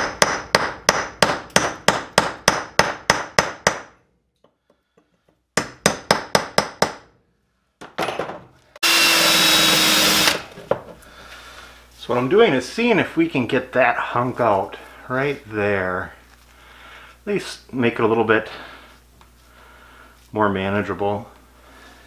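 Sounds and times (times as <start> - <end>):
hammer striking chisel on rock: 0.0 - 3.9, 5.6 - 7.0
cordless drill running: 8.8 - 10.5.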